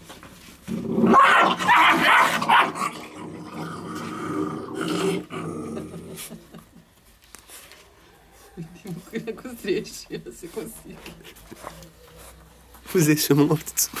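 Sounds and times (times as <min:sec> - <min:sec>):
puppies growling: 0:00.6 - 0:06.6.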